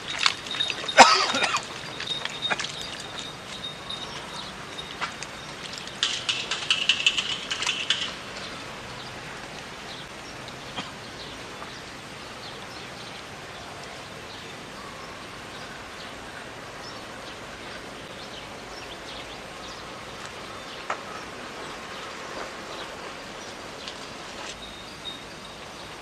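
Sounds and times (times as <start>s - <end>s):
outdoor background noise: 0.0s - 26.0s
sharp clicks: 6.0s - 8.2s.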